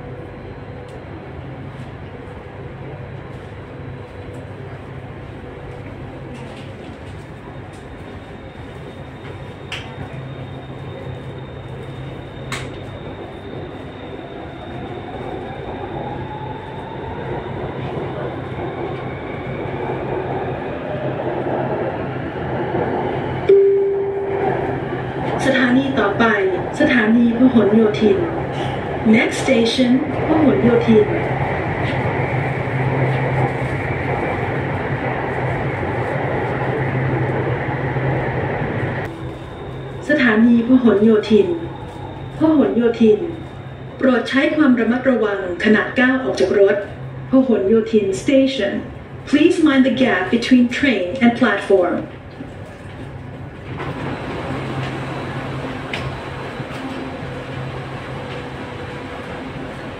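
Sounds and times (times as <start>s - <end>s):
metro train rumble and hiss: 0.0s - 59.9s
thin high tone: 23.5s - 24.6s.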